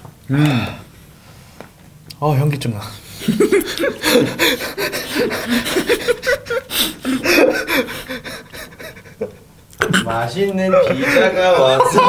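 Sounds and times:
men laughing: 3.0 - 12.0.

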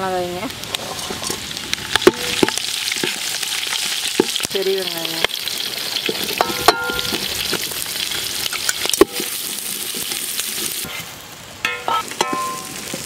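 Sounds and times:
onions sizzling in oil: 0.0 - 13.0
metal ladle scraping a pot: 0.7 - 1.4.

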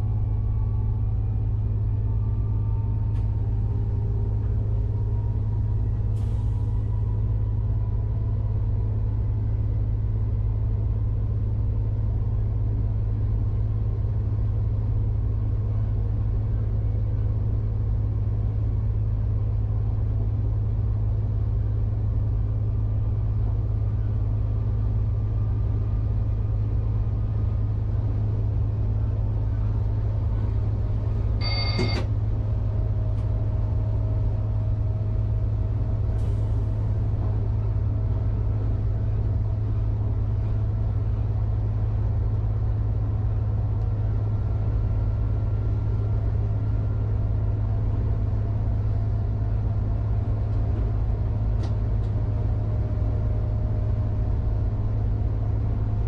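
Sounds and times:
railcar low rumble: 0.0 - 56.0
high electronic tone: 31.4 - 32.0.

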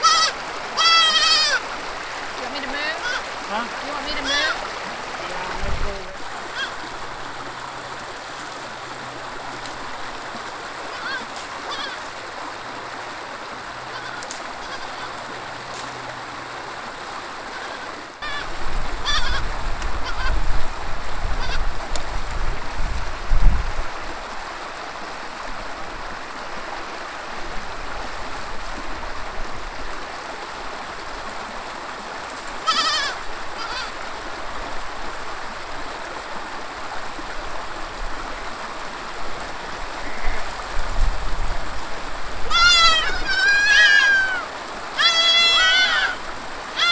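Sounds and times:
goat kids bleating: 0.0 - 1.7, 2.9 - 3.3, 4.1 - 4.6, 6.5 - 6.9, 10.9 - 12.0, 13.9 - 15.2, 17.5 - 19.4, 20.0 - 20.4, 32.6 - 34.0, 42.5 - 46.9
running creek: 0.0 - 46.9.

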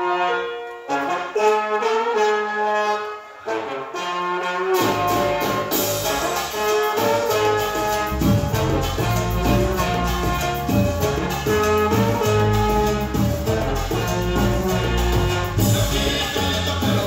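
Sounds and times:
horn section playing: 0.0 - 17.0
latin dance music: 0.0 - 17.0
bass and percussion: 4.8 - 17.0.

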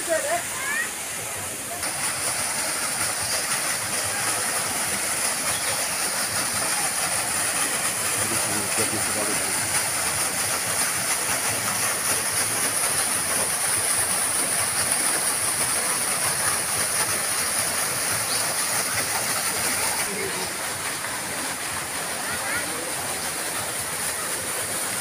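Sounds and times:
small waterfalls splashing into pond: 0.0 - 25.0.

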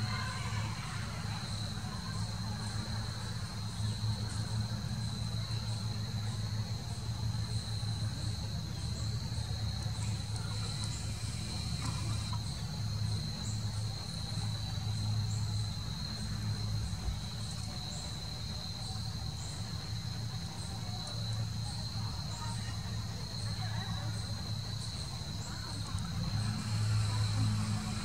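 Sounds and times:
insects trilling: 0.0 - 28.0
low steady hum: 0.0 - 28.0.

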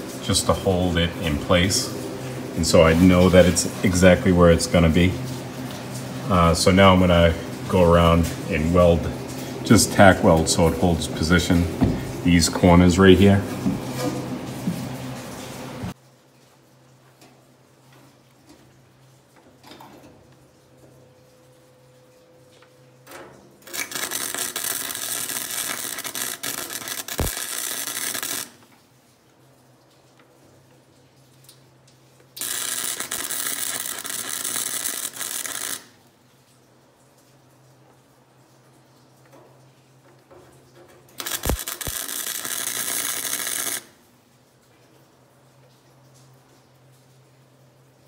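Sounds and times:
welder crackling sizzle: 0.0 - 16.0, 23.6 - 28.8, 32.3 - 36.0, 41.2 - 44.0
welder arc crackling: 23.6 - 28.8, 32.4 - 36.0, 41.2 - 44.0.

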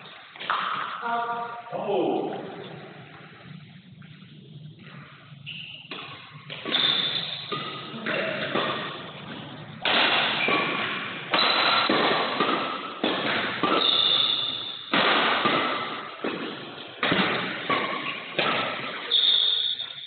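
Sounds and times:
rackets hitting shuttlecock with echo: 0.4 - 1.0, 4.8 - 20.0.

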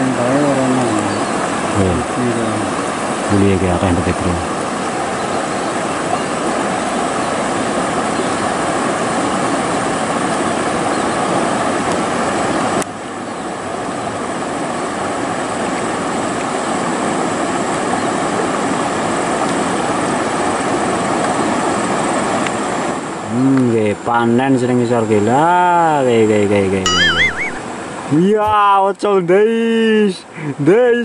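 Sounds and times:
river water over rocks: 0.0 - 23.3.

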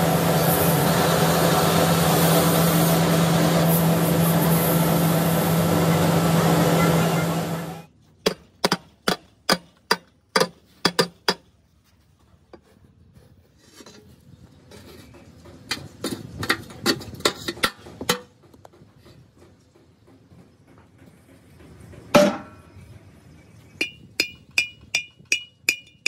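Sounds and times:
loud machine drone: 0.0 - 7.9
sharp metal knocks: 8.2 - 11.5, 22.1 - 22.6, 23.8 - 26.0.

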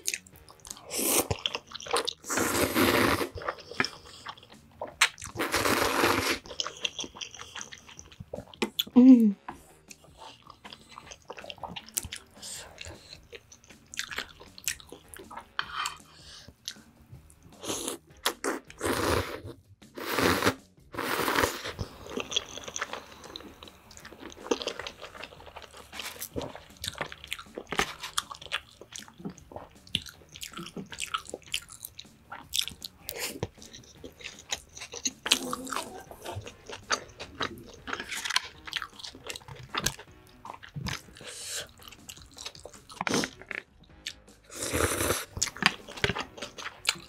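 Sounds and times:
chewing and mouth clicks: 0.0 - 2.3, 3.3 - 5.4, 6.4 - 9.0, 9.8 - 18.7, 22.1 - 47.0
slurping noodles: 0.6 - 8.5, 17.6 - 31.8, 44.5 - 47.0.

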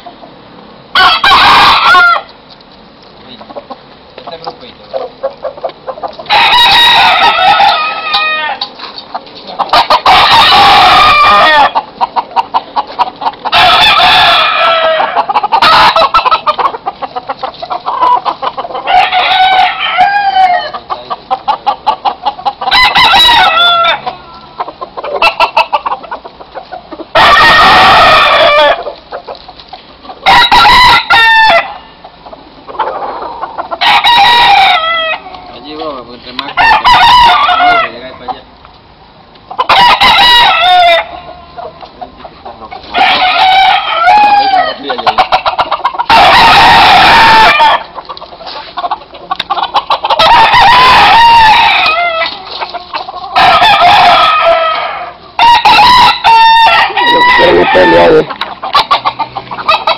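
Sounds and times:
roosters crowing: 0.0 - 2.5, 3.3 - 38.5, 39.4 - 59.9
rapid clucking: 2.5 - 6.4, 11.2 - 13.8, 15.0 - 19.2, 20.7 - 22.8, 24.0 - 27.4, 28.4 - 30.3, 41.2 - 43.4, 44.7 - 46.8, 47.4 - 51.0, 57.4 - 59.9.

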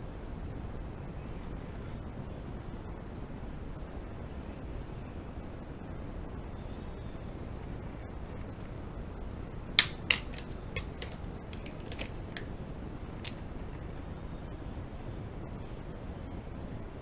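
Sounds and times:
low background noise: 0.0 - 17.0
pen caps clicking: 9.8 - 12.5, 13.2 - 13.4.

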